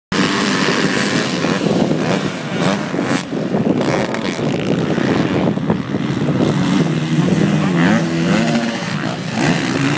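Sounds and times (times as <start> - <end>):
motocross bike engines: 0.1 - 9.9
wind buffeting microphone: 0.1 - 9.9.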